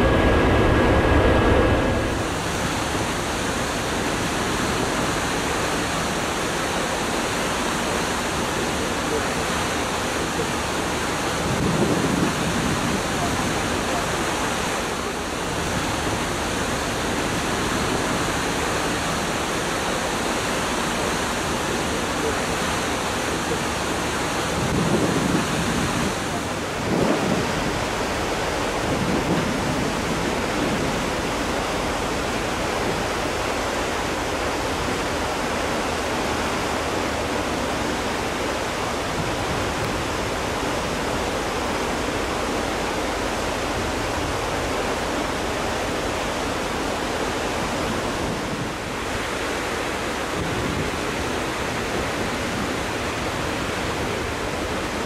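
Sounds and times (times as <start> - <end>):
wind and sea water rushing: 0.0 - 55.0.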